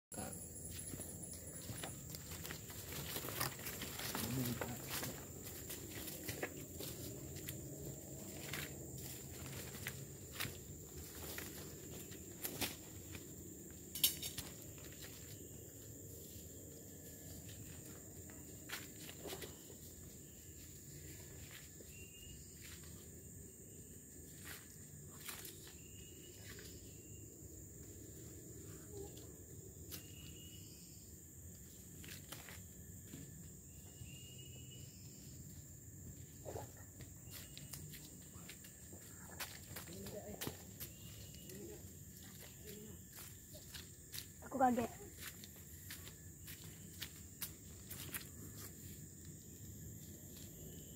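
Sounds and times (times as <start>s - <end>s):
high-pitched insect hum: 0.2s - 50.9s
footsteps on dry leaves and twigs: 0.7s - 23.0s, 37.2s - 49.1s
footsteps on dry leaves: 1.5s - 13.3s.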